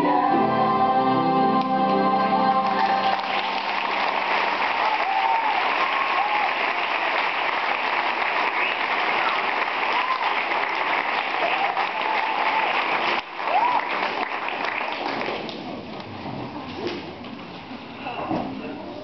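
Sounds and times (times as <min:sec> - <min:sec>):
audience applauding: 0:02.6 - 0:16.0.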